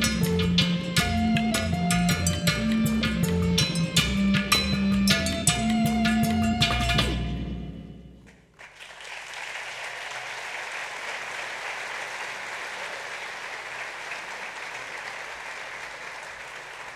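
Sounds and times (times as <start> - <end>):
audience applauding: 8.3 - 16.9.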